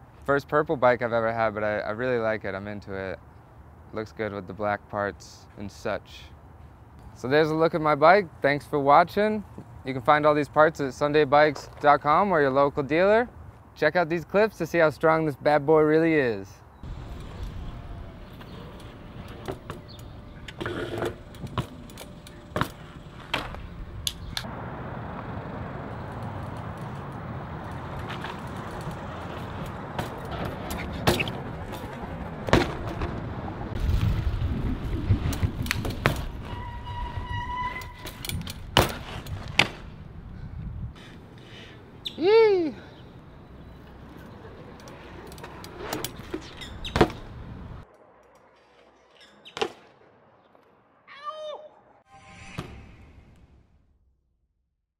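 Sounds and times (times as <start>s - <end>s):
bike tyres rumbling on concrete: 16.8s - 24.5s, 25.2s - 41.1s, 44.8s - 47.8s
bike hitting the ground: 17.2s - 24.4s, 26.4s - 40.0s, 45.4s - 47.4s
bike landing thump: 22.5s - 24.4s, 30.0s - 33.2s, 34.9s - 36.6s, 38.0s - 40.0s, 46.3s - 47.3s.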